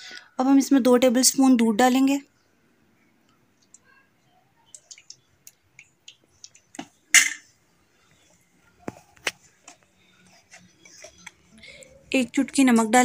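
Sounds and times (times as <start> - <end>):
spoon clattering: 6.1 - 7.5.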